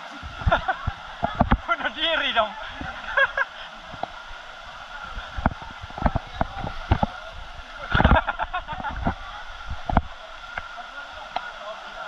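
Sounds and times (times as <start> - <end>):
waterfall rushing: 0.0 - 12.0
water splashing and knocking: 0.3 - 4.4, 5.0 - 10.7.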